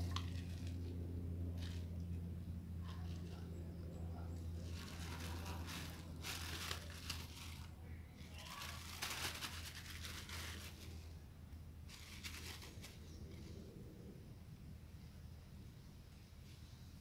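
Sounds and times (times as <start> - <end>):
steady low hum: 0.0 - 17.0
hands crinkling and rustling gear: 4.6 - 11.1.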